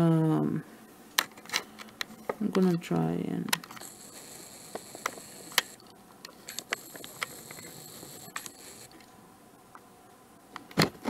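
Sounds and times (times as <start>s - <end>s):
camera lens motor whine: 3.7s - 9.0s.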